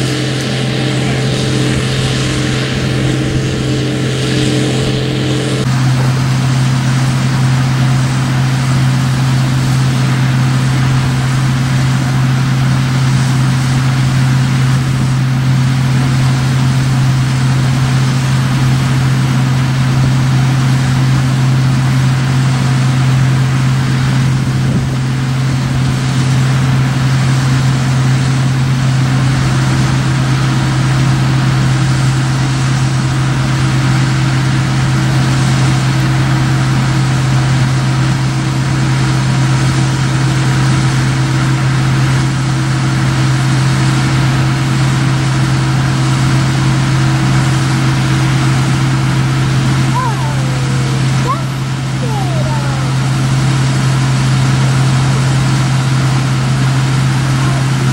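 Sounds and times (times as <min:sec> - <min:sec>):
higher machine hum: 0:00.0 - 0:19.2, 0:47.8 - 0:57.9
combine harvester low drone: 0:00.0 - 0:57.9.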